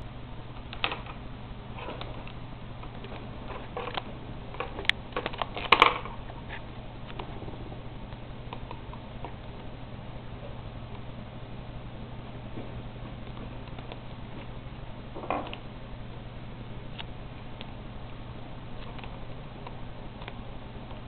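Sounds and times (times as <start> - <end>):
faint steady hum: 0.0 - 21.0
bird pecking pens and disc: 1.8 - 7.3.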